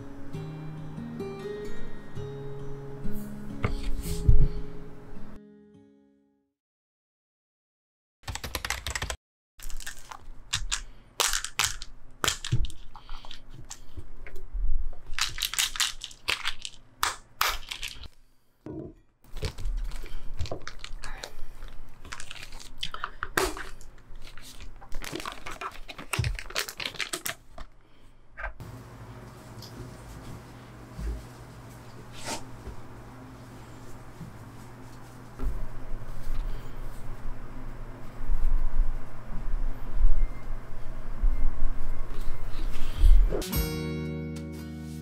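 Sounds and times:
plastic packaging crinkling: 0:09.6 - 0:13.9, 0:15.0 - 0:18.1, 0:19.3 - 0:27.8.

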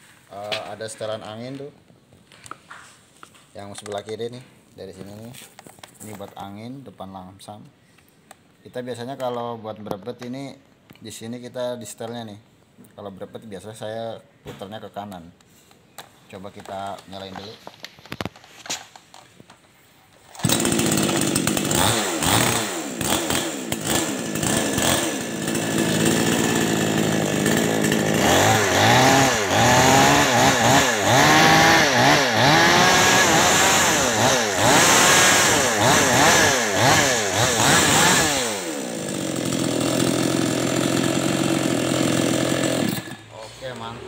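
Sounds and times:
chainsaw starting and revving: 0:20.3 - 0:43.9.

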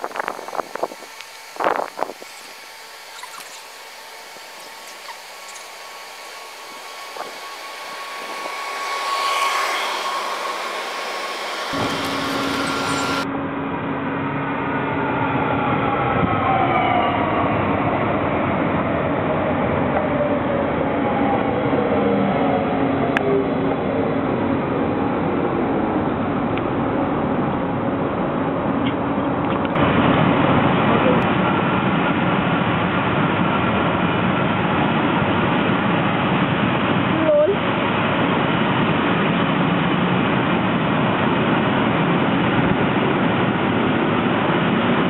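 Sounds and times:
electric motor whine: 0:00.0 - 0:13.3
train wheels rushing on rail: 0:05.5 - 0:13.3.

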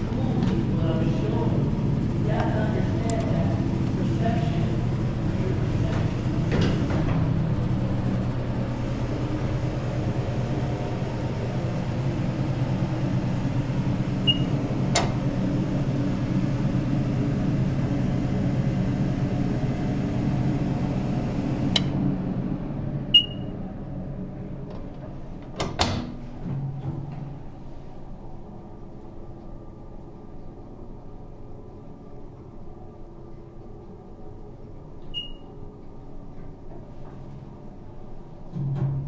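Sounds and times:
elevator low hum: 0:00.0 - 0:39.0
short high beeps: 0:14.3 - 0:14.5, 0:23.2 - 0:23.5.

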